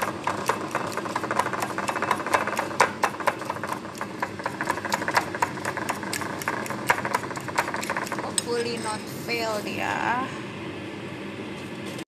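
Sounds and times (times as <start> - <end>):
spoon beating eggs in a bowl: 0.0 - 8.9.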